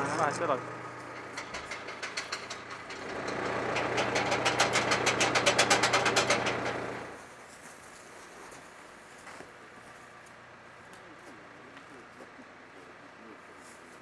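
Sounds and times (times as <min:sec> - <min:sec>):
engine idling: 0:00.0 - 0:07.2
winch ratchet clicking: 0:01.2 - 0:07.1.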